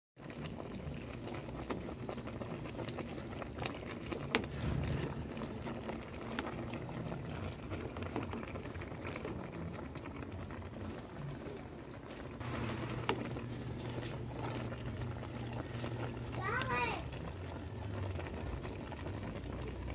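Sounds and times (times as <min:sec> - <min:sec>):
broth bubbling at a simmer: 0:00.2 - 0:19.9
low steady hum: 0:04.4 - 0:19.9.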